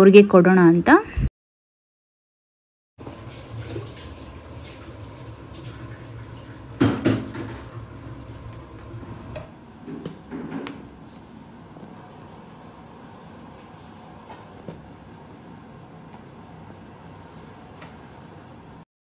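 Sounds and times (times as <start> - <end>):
pots and utensils clinking: 6.8 - 7.8.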